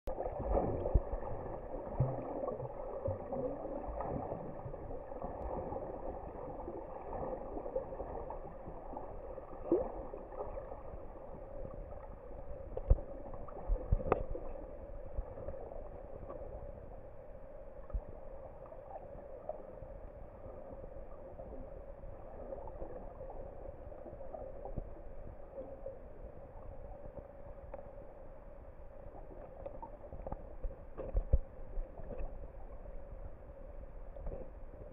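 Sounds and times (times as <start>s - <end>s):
clicks and knocks underwater: 0.1s - 17.1s, 29.0s - 34.9s
faint hum: 0.1s - 34.9s
underwater rush of water: 0.1s - 34.9s.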